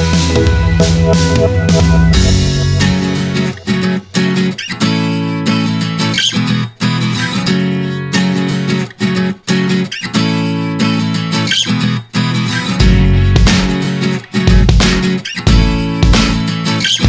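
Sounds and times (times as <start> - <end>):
strummed guitar chords: 0.0 - 6.0.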